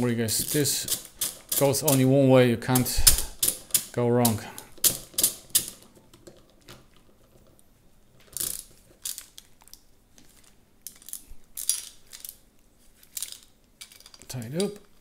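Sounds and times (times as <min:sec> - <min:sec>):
small hardware clicking and rattling: 0:00.5 - 0:02.0, 0:13.1 - 0:15.0.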